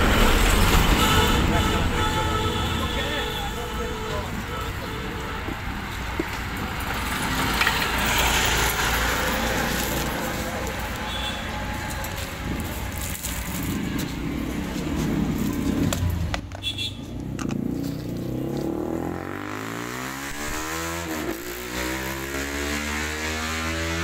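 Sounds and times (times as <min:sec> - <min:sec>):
sharp clicks and knocks: 0:05.4 - 0:08.2
engine drone rising in pitch: 0:17.2 - 0:24.0.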